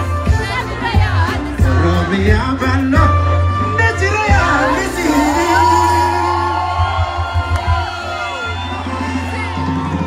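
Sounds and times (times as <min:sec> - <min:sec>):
deep bass: 0:00.0 - 0:10.0
drum beat: 0:04.2 - 0:10.0.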